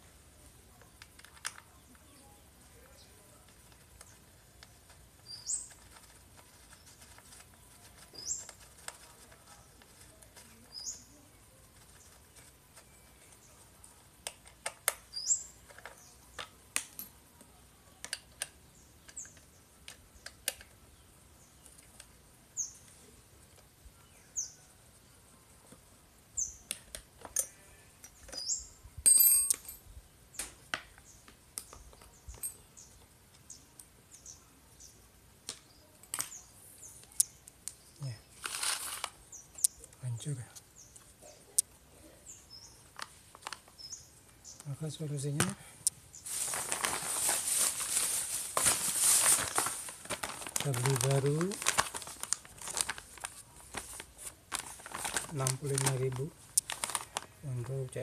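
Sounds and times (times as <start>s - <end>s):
bird chirping: 1.6s - 14.0s, 14.9s - 16.6s, 18.7s - 23.2s, 23.9s - 25.5s, 26.3s - 26.8s, 27.4s - 30.4s, 31.0s - 38.4s, 39.2s - 46.4s
screwdriver and screws clinking: 29.1s - 29.8s.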